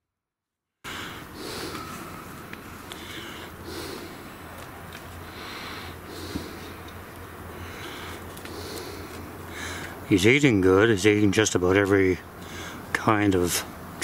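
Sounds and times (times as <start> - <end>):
heavy breathing through nose: 0.9 - 10.1, 12.4 - 12.9
low steady hum: 0.9 - 14.0.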